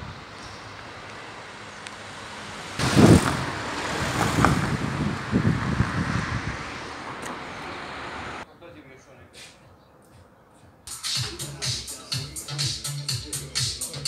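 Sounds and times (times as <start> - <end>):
vehicle passing by: 0.0 - 8.5.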